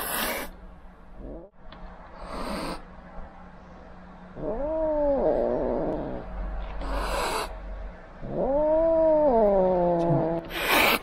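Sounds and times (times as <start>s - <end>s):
kitten hissing: 0.0s - 0.5s, 2.2s - 2.8s, 6.8s - 7.5s, 10.0s - 11.0s.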